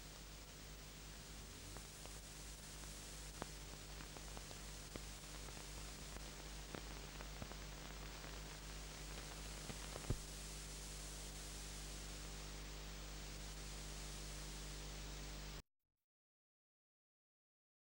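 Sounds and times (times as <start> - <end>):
tape hiss with low hum: 0.0 - 15.6
faint clicks: 2.8 - 10.3.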